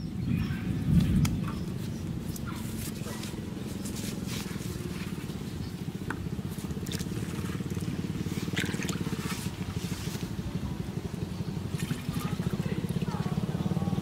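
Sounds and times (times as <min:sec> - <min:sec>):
small engine running: 0:02.0 - 0:14.0.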